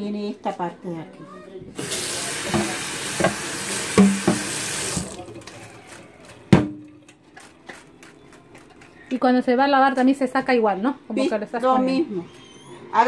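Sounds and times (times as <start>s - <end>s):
tap running into metal sink: 1.8s - 5.2s.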